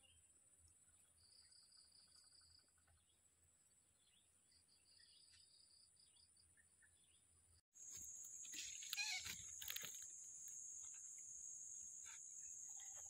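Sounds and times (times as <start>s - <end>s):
high-pitched insect shrilling: 8.0s - 10.6s
short animal calls: 8.6s - 9.6s.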